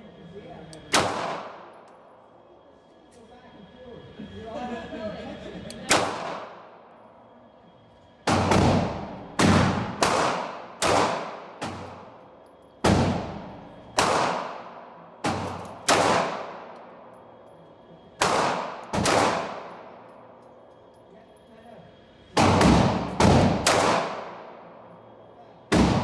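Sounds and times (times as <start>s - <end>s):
pistol shots echoing indoors: 0.7s - 2.3s, 5.9s - 7.2s, 7.9s - 21.5s, 22.2s - 26.0s.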